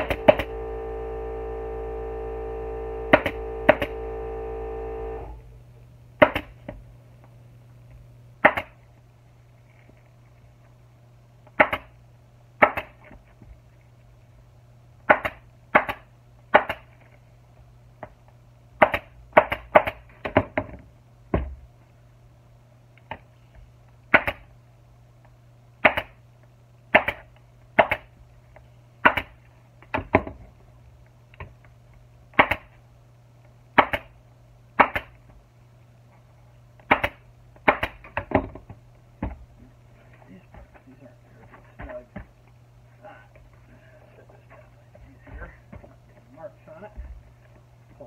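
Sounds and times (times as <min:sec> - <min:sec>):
low steady hum: 0:00.0 - 0:19.4, 0:20.8 - 0:48.0
pneumatic staple gun firing: 0:03.1 - 0:04.0.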